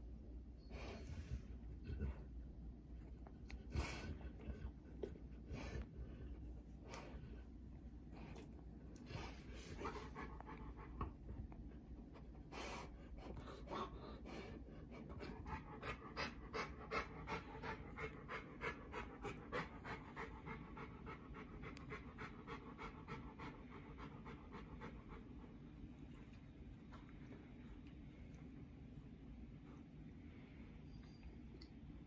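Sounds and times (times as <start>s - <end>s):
dog panting: 8.1s - 27.4s.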